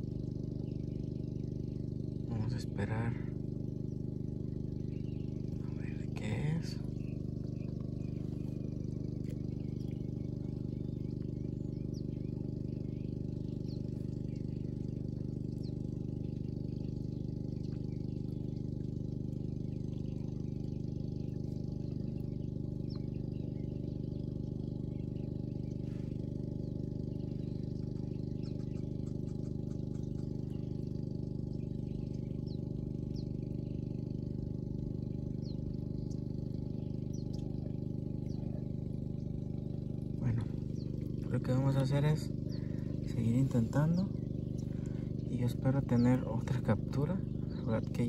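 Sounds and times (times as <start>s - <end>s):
low motor hum: 0.0s - 48.0s
high bird chirps: 4.4s - 18.8s, 35.0s - 48.0s.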